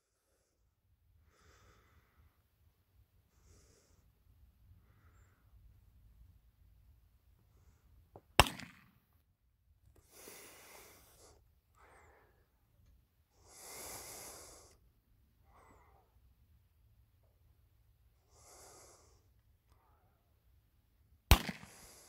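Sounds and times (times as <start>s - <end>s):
rifle shot: 8.4s - 9.0s, 21.3s - 22.0s
hissing breaths: 10.0s - 12.6s, 13.3s - 16.2s, 18.2s - 20.2s, 21.5s - 22.0s.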